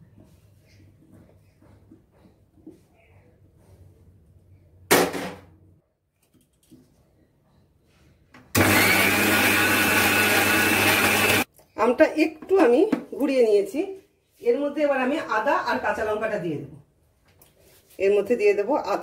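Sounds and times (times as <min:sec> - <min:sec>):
mixer grinder motor grinding: 0:08.5 - 0:11.5.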